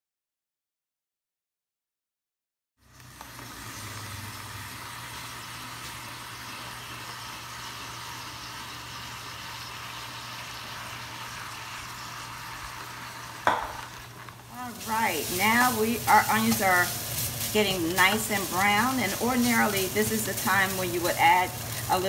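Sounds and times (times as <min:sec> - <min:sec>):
even hiss: 0:13.3 - 0:22.0.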